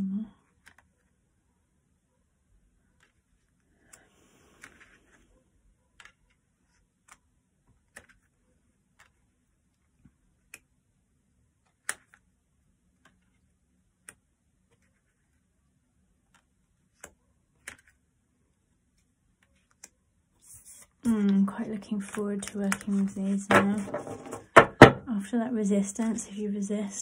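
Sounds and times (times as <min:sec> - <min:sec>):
cards tapping on wooden table: 0:22.4 - 0:25.0.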